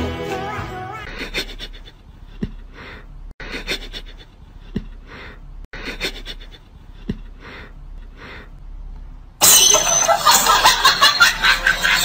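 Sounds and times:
breathy puffs: 1.1 - 8.6.

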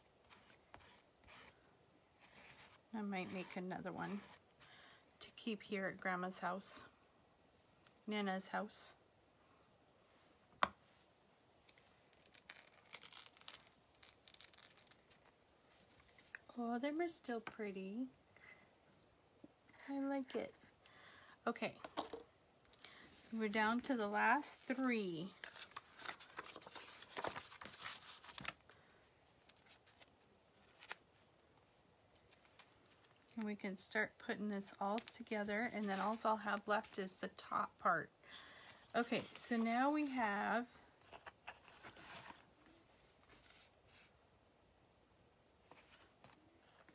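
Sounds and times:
plastic sheet crinkling: 12.1 - 16.4, 24.6 - 28.8.

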